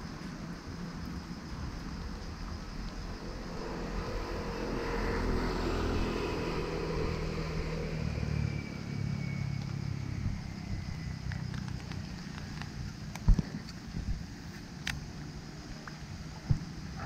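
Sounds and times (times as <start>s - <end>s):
vehicle engine running: 0.0s - 17.0s
faint whine falling in pitch: 1.5s - 11.6s.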